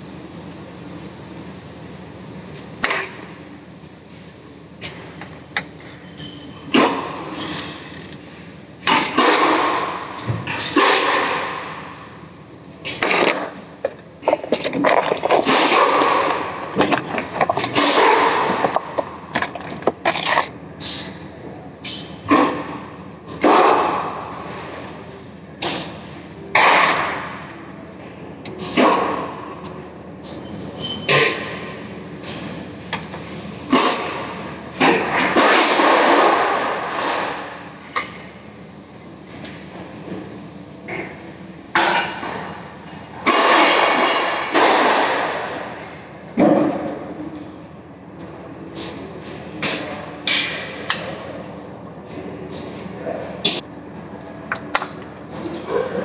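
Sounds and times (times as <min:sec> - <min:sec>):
tools clicking and clattering: 0:53.4 - 0:53.7.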